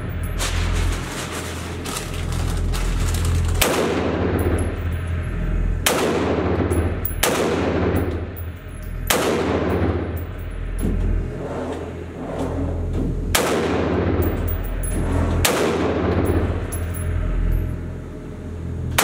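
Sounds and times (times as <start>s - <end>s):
rifle shots echoing indoors: 3.5s - 4.7s, 5.8s - 8.3s, 9.0s - 10.3s, 13.3s - 14.4s, 15.4s - 16.5s.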